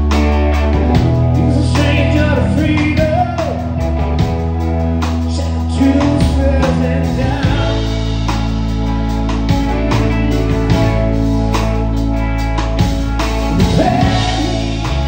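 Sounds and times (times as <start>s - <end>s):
drum kit: 0.0s - 15.0s
electric guitar: 0.0s - 15.0s
man singing: 1.3s - 4.2s, 5.2s - 8.4s, 13.4s - 15.0s.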